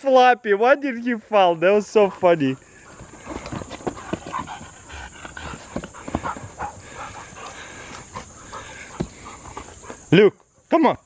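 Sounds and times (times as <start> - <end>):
paws knocking and scuffing: 2.0 - 10.5
dogs vocalizing while play-fighting: 2.0 - 10.6.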